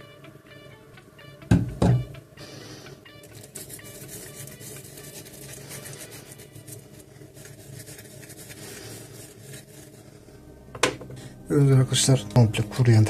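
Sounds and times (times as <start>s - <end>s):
toothbrush scrubbing: 3.3s - 10.1s.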